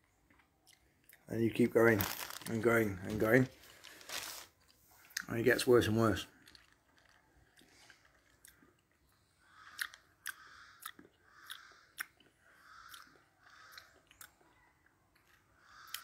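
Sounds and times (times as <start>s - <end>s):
tongue and lip clicks: 0.2s - 1.3s, 6.4s - 16.0s.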